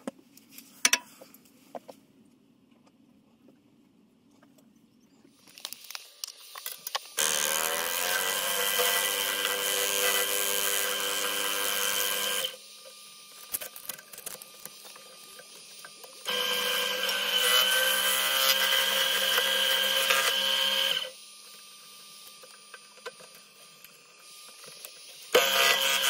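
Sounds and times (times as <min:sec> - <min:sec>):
wood lathe motor whining: 0:07.2 - 0:26.0.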